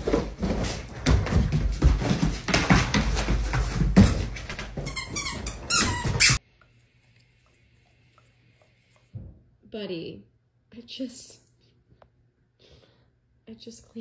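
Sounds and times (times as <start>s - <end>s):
dog paws thumping on floor: 0.0s - 6.4s
high squeaks: 4.8s - 6.4s.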